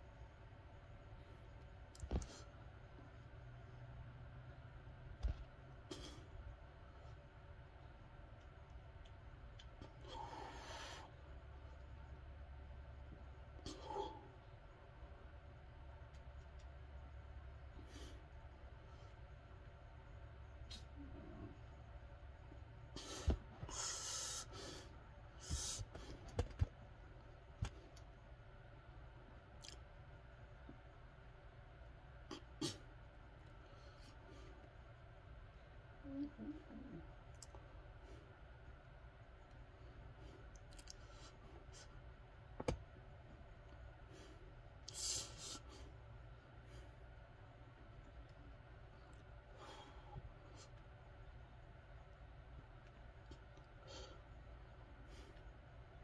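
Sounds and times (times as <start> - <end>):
forceful breaths hissing: 23.0 - 25.9.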